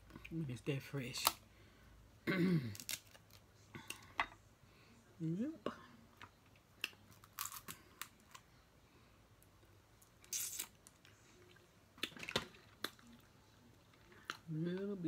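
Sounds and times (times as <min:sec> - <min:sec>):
crab shells cracking: 0:02.8 - 0:03.4, 0:06.8 - 0:08.4.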